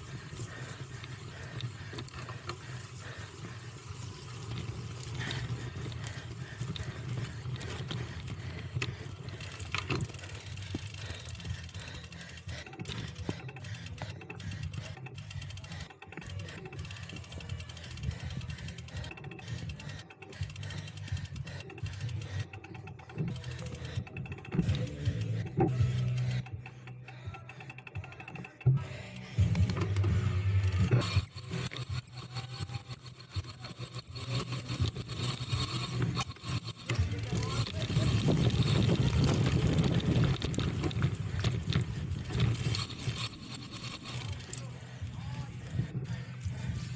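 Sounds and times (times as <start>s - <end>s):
bike rumbling over rough ground: 0.0s - 19.8s, 30.8s - 46.9s
bike chain clicking and rattling: 0.0s - 46.9s.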